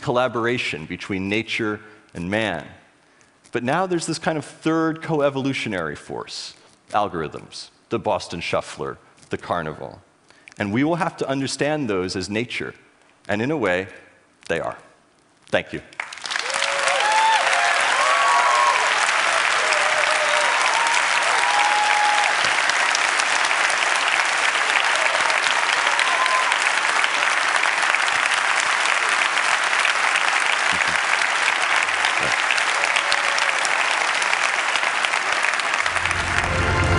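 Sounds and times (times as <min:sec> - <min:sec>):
audience applauding: 0:16.0 - 0:36.9
people whooping and cheering: 0:16.4 - 0:22.9, 0:24.4 - 0:27.7, 0:32.0 - 0:34.2.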